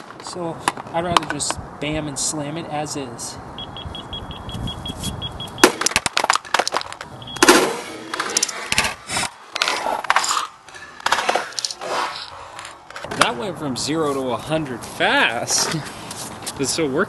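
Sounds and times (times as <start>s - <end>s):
hammer smashing plastic toy: 5.6s - 8.6s
plastic cracking and clattering: 5.8s - 8.9s.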